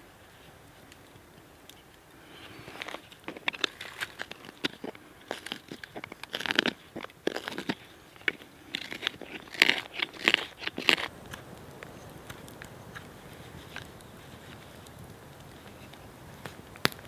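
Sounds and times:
knife scraping wood: 0:02.4 - 0:11.1.

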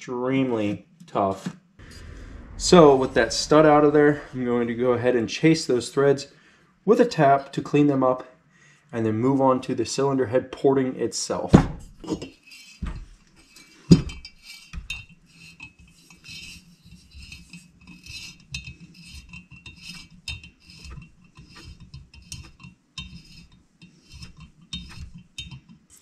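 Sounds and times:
metallic clicks and scrapes: 0:12.1 - 0:26.0.

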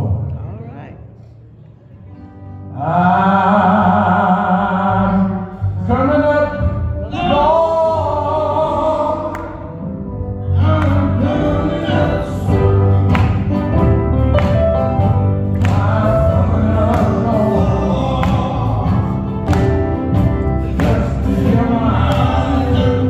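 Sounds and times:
bass guitar: 0:02.5 - 0:23.0
male voices singing in harmony: 0:02.7 - 0:09.8, 0:10.4 - 0:13.6, 0:15.5 - 0:23.0
electric guitar: 0:09.3 - 0:23.0.

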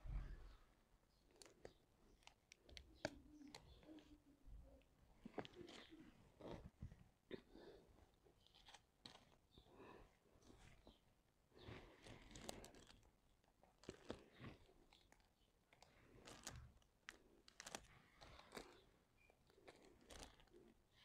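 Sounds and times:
plastic sheet rustling and crinkling: 0:11.6 - 0:13.1, 0:15.9 - 0:18.9, 0:19.6 - 0:20.7.

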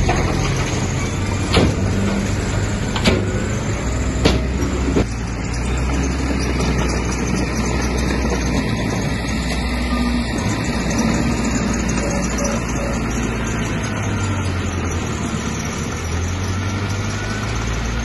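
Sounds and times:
sharp metallic knocks: 0:00.0 - 0:09.1
diesel engine running: 0:00.0 - 0:18.0.

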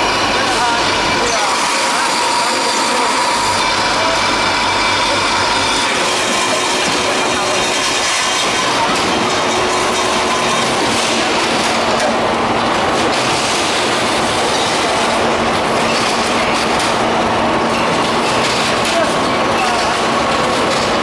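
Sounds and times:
packing machinery clattering: 0:04.8 - 0:21.0.

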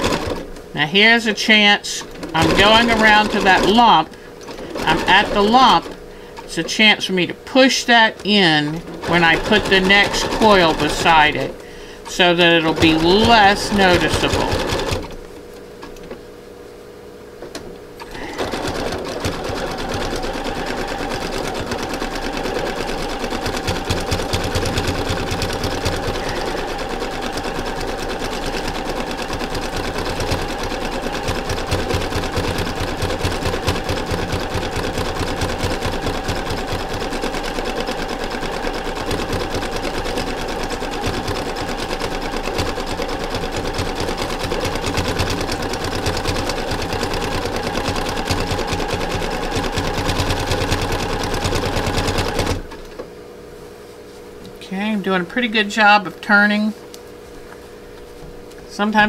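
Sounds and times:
sewing machine stitching rattle: 0:00.0 - 0:00.4, 0:02.1 - 0:06.8, 0:07.9 - 0:15.2, 0:18.0 - 0:52.8.

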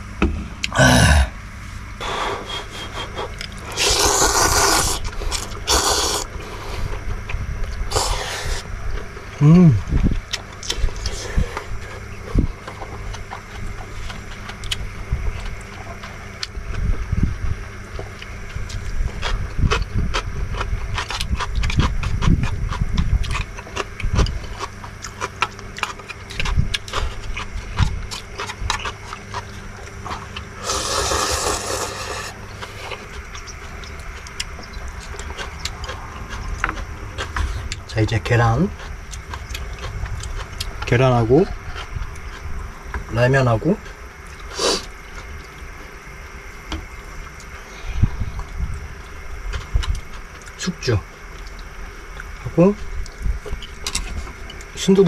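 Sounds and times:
person slurping noodles: 0:02.0 - 0:06.9, 0:07.9 - 0:08.6, 0:30.6 - 0:33.1, 0:44.5 - 0:44.9.

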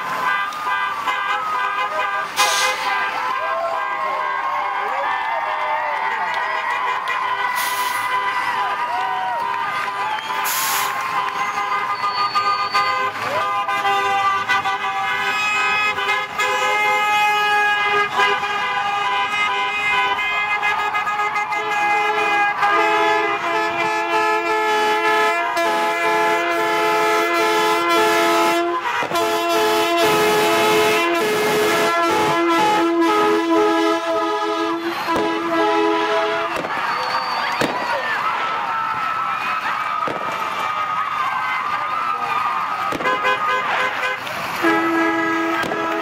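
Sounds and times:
vehicle horns blasting: 0:00.1 - 0:04.4, 0:09.8 - 0:37.8, 0:42.9 - 0:46.0.

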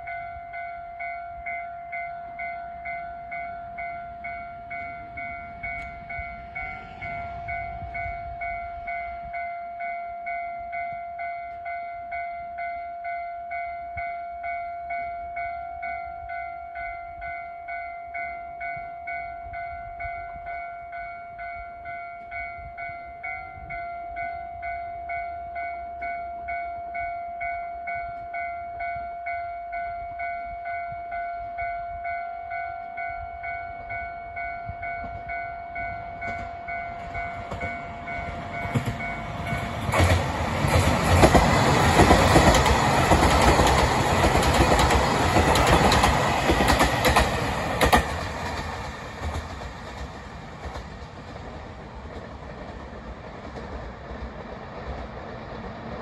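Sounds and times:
diesel train passing: 0:00.0 - 0:13.6, 0:14.4 - 0:56.0
warning bell ringing: 0:00.0 - 0:49.4
train wheel clack: 0:34.6 - 0:56.0.

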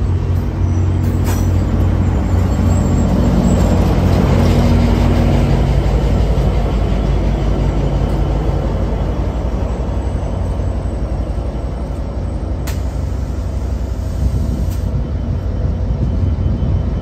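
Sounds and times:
diesel locomotive rumbling: 0:00.0 - 0:17.0
short sharp click: 0:12.6 - 0:12.9.

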